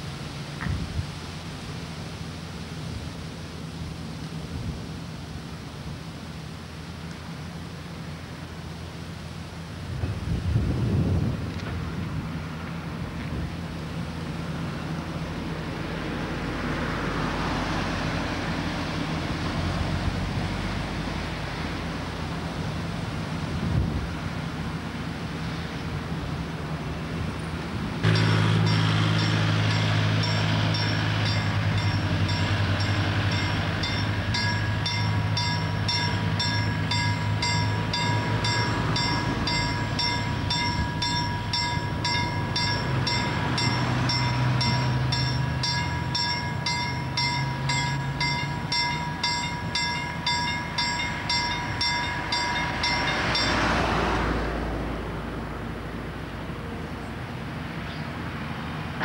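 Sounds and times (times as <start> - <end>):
level-crossing warning bell: 28.0 - 54.4.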